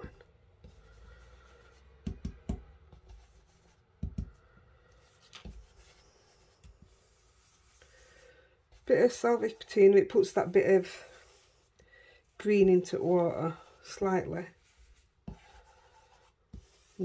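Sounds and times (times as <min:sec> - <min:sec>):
brush brushing on card: 0:05.0 - 0:17.0.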